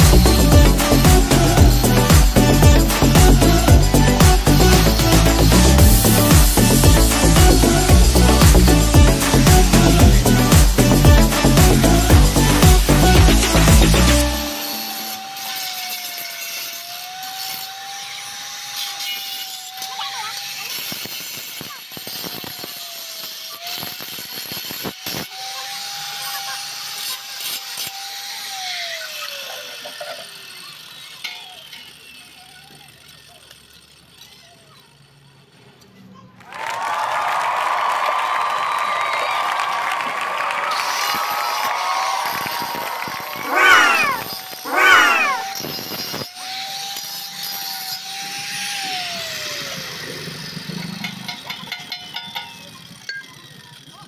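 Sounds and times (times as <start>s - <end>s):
angle grinder whine spinning down: 0.0s - 19.8s, 40.7s - 46.0s.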